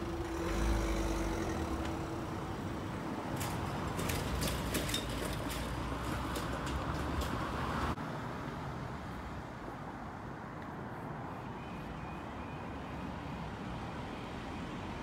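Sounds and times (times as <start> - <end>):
cars driving over level crossing: 0.0 - 8.0
van driving across: 0.0 - 8.0
road traffic noise: 0.0 - 15.0.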